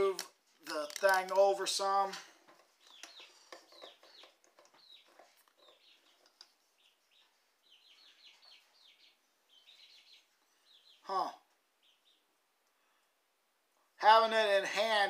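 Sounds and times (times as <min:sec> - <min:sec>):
small bird chirping: 0:02.6 - 0:12.9.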